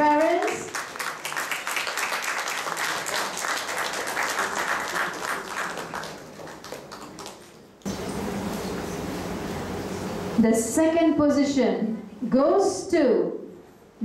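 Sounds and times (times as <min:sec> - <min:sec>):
audience applauding: 0:00.2 - 0:08.1.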